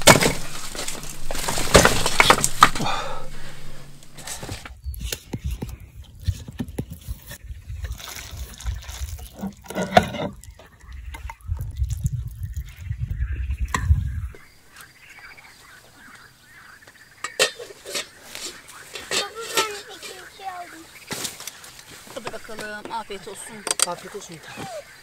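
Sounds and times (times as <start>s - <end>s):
liquid sloshing and dripping: 7.8s - 12.7s.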